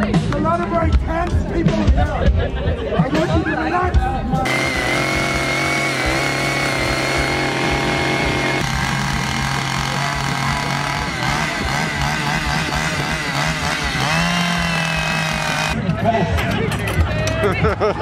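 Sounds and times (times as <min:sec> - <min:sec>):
two-stroke chainsaw engine running: 0:04.4 - 0:15.8.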